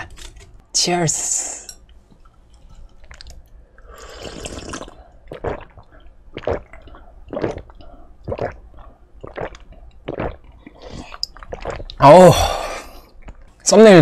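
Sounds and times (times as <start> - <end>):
person sipping and gulping juice: 2.8 - 13.5.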